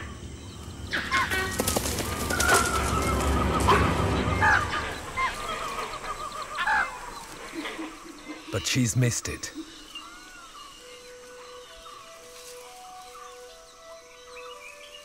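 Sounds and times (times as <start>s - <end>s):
birds calling: 0.0s - 15.0s
crashing through dry undergrowth: 0.9s - 6.2s.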